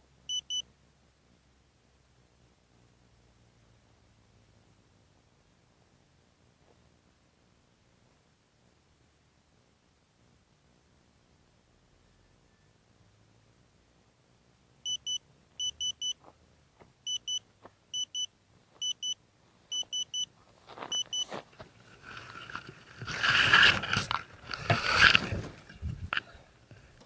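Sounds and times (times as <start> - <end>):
short high beeps: 14.9 - 16.2, 17.1 - 17.4, 18.0 - 20.3, 20.9 - 21.3
camera handling rustling and knocking: 20.9 - 27.0.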